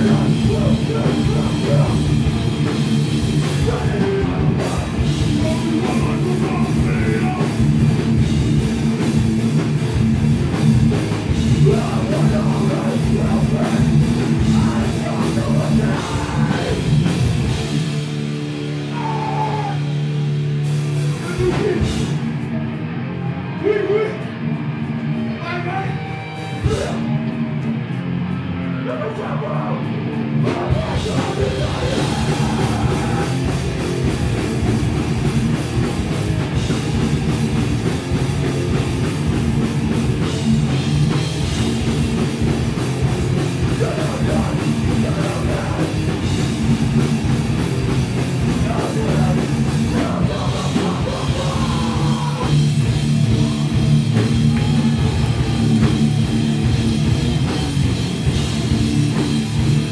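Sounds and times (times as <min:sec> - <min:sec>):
driving drums: 0:00.0 - 0:59.9
punk band playing live: 0:00.0 - 0:59.9
shouted vocals: 0:03.6 - 0:07.7, 0:14.4 - 0:16.9, 0:18.8 - 0:20.1, 0:25.4 - 0:27.2, 0:30.4 - 0:33.6, 0:48.5 - 0:56.1.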